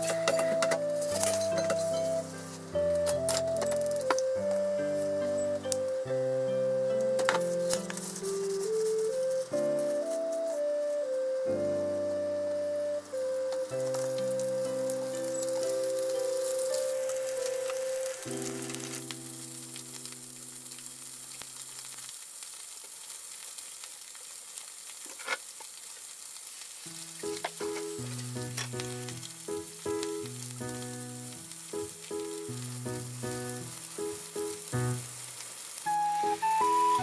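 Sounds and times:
light background music: 0:00.0 - 0:20.1, 0:35.8 - 0:37.0
food sizzling in a frying pan: 0:00.0 - 0:37.0.

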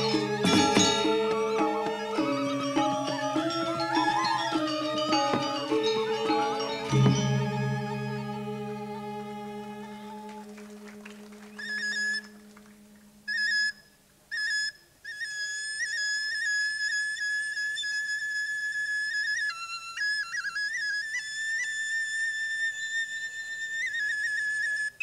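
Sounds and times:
low gamelan tone: 0:00.0 - 0:13.7
bamboo flute playing: 0:00.0 - 0:25.0.

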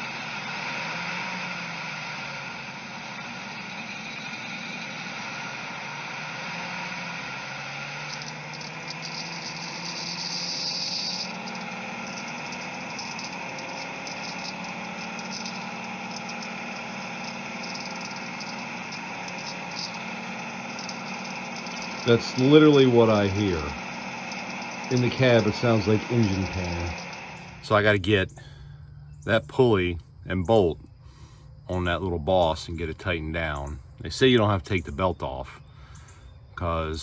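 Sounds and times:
engine running: 0:00.0 - 0:37.0.

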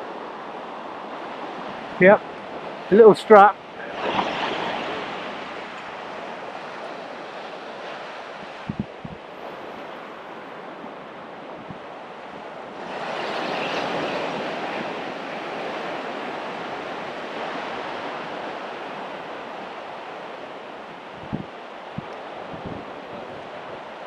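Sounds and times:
small waves washing on shore: 0:00.0 - 0:24.0.

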